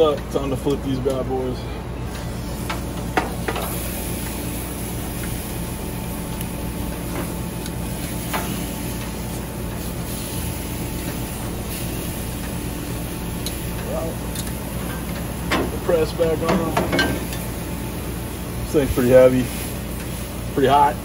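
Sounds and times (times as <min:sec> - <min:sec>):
grill hum and hiss: 0:00.0 - 0:21.0
metal tongs clicking on grill: 0:13.4 - 0:15.2.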